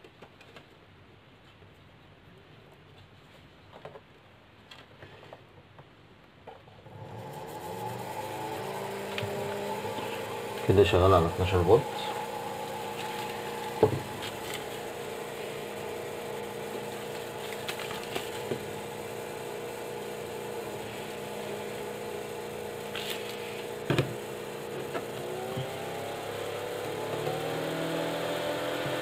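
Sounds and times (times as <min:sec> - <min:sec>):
cooling fan whirring hum: 0:06.7 - 0:29.0.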